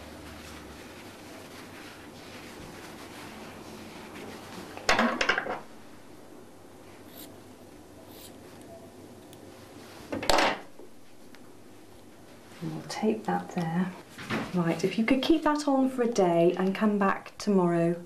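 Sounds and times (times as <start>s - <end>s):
bandage rustling: 0.0s - 4.8s.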